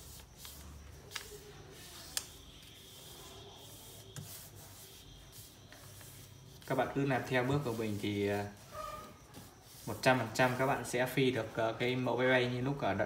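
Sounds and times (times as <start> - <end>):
paper rustling on wooden table: 0.0 - 10.7.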